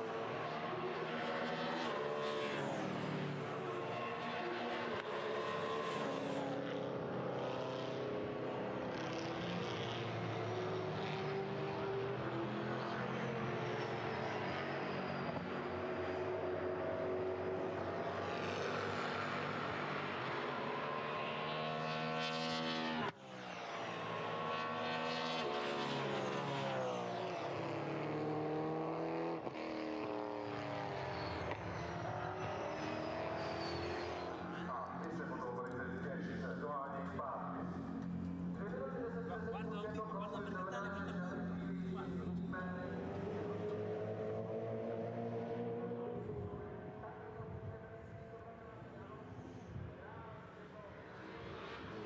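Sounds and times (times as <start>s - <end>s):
race car engines accelerating: 0.0s - 52.0s.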